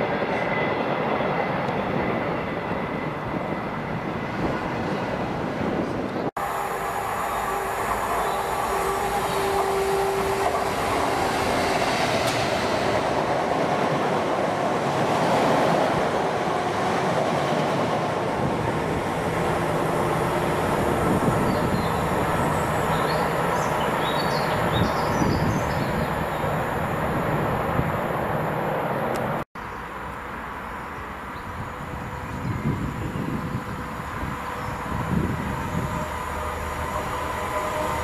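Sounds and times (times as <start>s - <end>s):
train wheels rumbling on rails: 0.0s - 29.4s
diesel locomotive engine passing: 0.0s - 38.0s.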